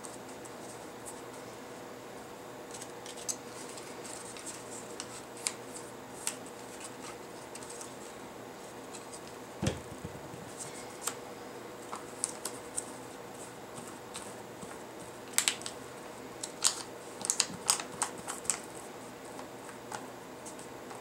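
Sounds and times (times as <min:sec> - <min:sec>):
faint steady hum: 0:00.0 - 0:21.0
paper being handled: 0:02.7 - 0:08.1, 0:16.4 - 0:19.8
plastic bottle set down: 0:09.6 - 0:10.3.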